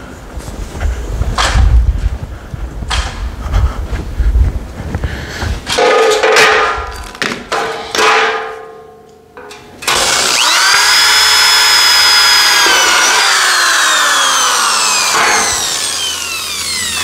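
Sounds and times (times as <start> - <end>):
metal ramp clanging: 5.7 - 10.0
cordless drill boring into metal: 9.8 - 17.0.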